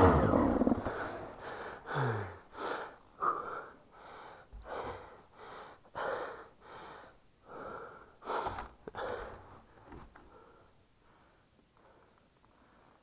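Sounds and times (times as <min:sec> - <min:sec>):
heavy fast breathing: 0:00.8 - 0:13.0.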